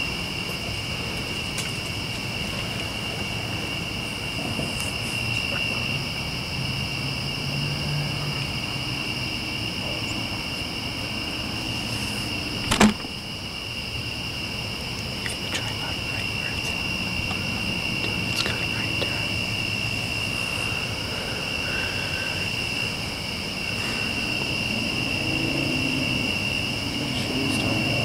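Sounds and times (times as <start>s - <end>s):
crickets trilling: 0.0s - 28.0s
sharp click: 12.6s - 13.1s.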